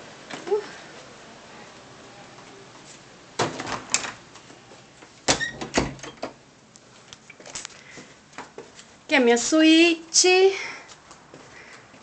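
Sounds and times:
door shutting and latching: 3.4s - 4.2s, 5.2s - 6.4s.

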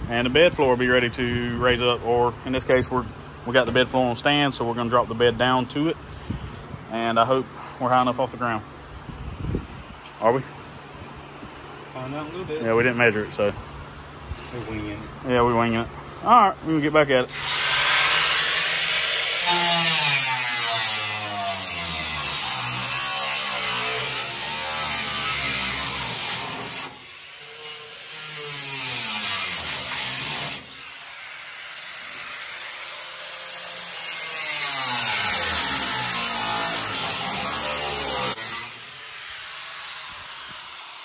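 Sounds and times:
angle grinder cutting sheet steel: 17.3s - 41.0s.

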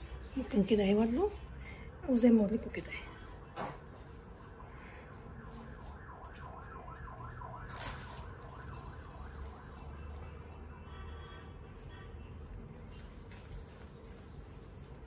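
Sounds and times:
faint siren yelping: 4.3s - 12.3s.

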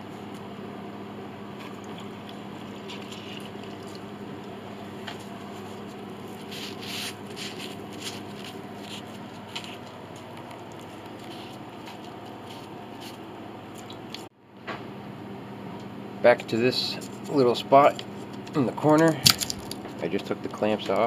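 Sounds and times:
steady low hum: 0.0s - 21.0s
rag wiping: 5.1s - 13.2s.

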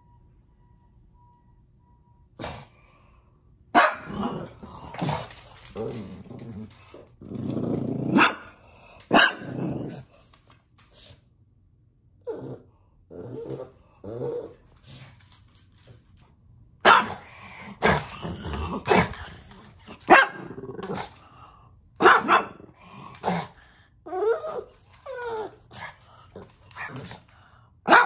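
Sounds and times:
dog barking: 3.8s - 4.3s, 8.1s - 8.4s, 9.1s - 9.5s, 16.8s - 17.3s, 20.1s - 20.5s, 22.0s - 22.7s
dog whiny grumble: 12.2s - 14.6s.

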